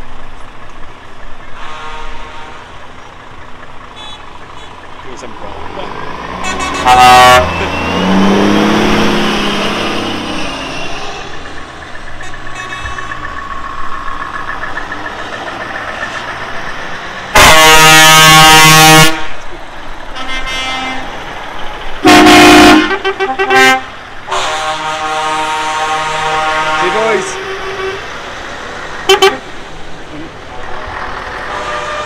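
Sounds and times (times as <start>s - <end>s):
lorry engines running: 0.0s - 32.0s
lorry air horn blasts: 1.6s - 2.7s, 6.4s - 7.6s, 17.4s - 19.3s, 22.0s - 28.1s, 29.1s - 29.4s, 31.5s - 32.0s.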